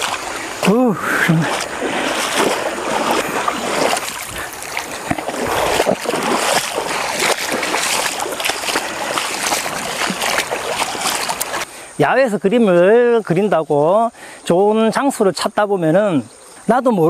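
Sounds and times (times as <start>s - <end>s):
feet splashing through water: 0.0s - 11.7s
flowing water rushing: 0.0s - 11.8s.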